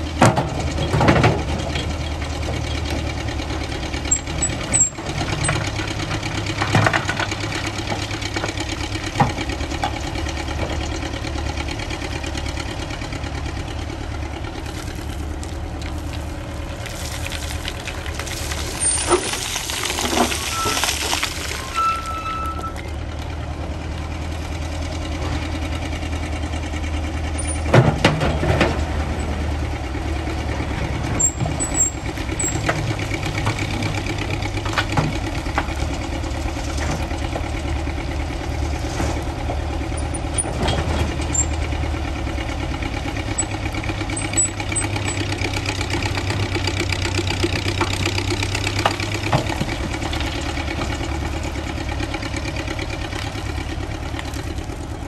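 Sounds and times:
machinery clanks and knocks: 0.0 - 13.5, 27.2 - 29.7, 30.4 - 42.0, 42.9 - 53.6
excavator engine humming: 0.0 - 55.0.

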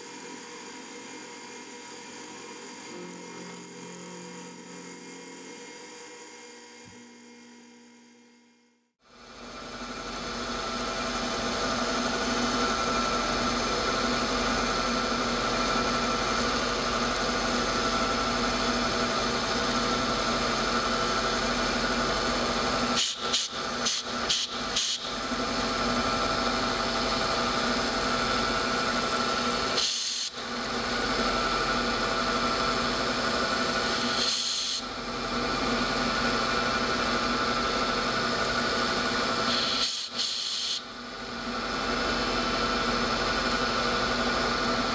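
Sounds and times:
milling machine spindle hum: 0.0 - 8.4, 9.1 - 44.9
hiss of metal cutting: 23.0 - 25.0, 34.0 - 34.8, 39.4 - 40.8.

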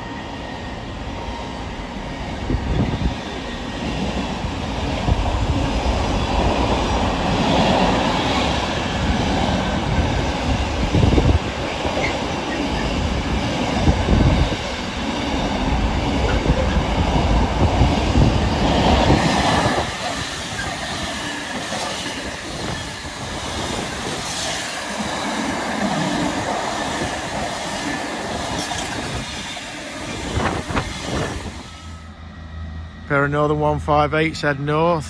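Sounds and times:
freight train passing: 0.0 - 35.0.

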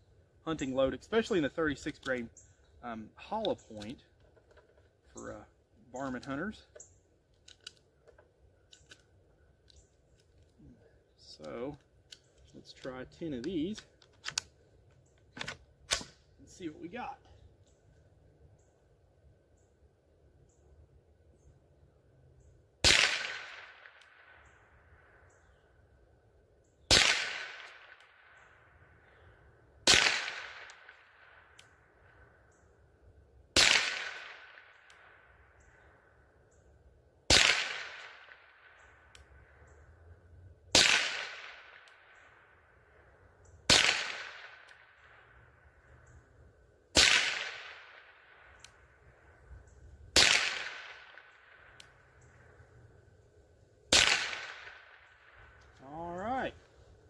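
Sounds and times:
rifle shots echoing: 22.8 - 24.6, 26.9 - 28.6, 29.8 - 31.5, 33.6 - 35.3, 37.3 - 39.1, 40.7 - 42.6, 43.7 - 45.4, 46.9 - 48.9, 50.1 - 52.1, 53.9 - 55.6.

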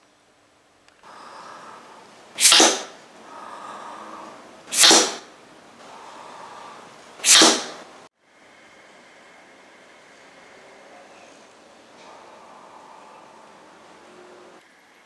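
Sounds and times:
breaths drawn in: 1.1 - 8.0.

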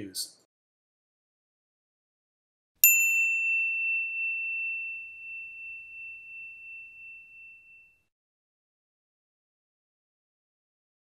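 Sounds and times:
bell ding: 2.8 - 8.1.

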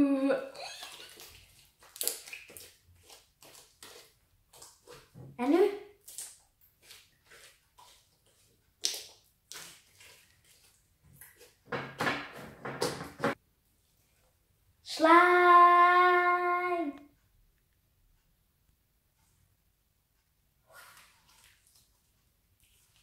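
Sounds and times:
slime squelching and popping: 0.5 - 5.2, 5.9 - 11.6.

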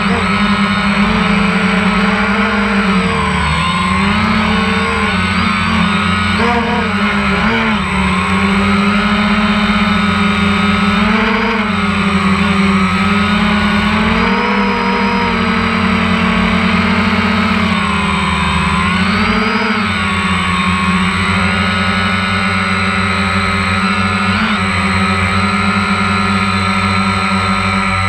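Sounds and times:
drone propellers whirring: 0.0 - 28.0.

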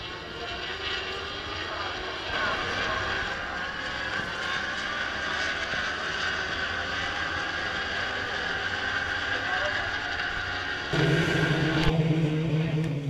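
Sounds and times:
motorcycle engines at high revs: 0.0 - 13.0.

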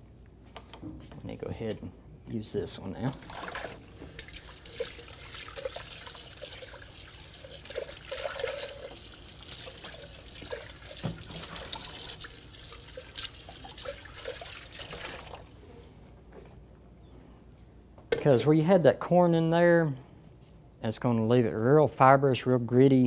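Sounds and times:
tap running into metal sink: 10.4 - 12.1.

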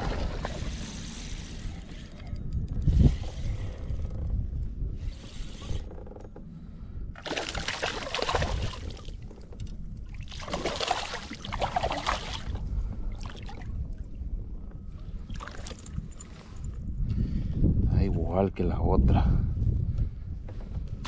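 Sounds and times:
steady low rumble: 0.0 - 21.0
water splashing: 7.2 - 9.2, 10.2 - 12.6.

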